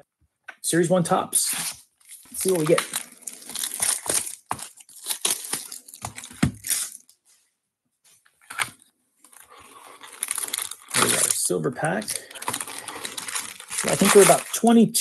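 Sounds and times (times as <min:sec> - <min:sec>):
plastic wrap tearing and crinkling: 0:01.4 - 0:07.1, 0:08.4 - 0:15.0
box rustle: 0:01.6 - 0:07.1, 0:08.4 - 0:11.4, 0:12.0 - 0:14.7.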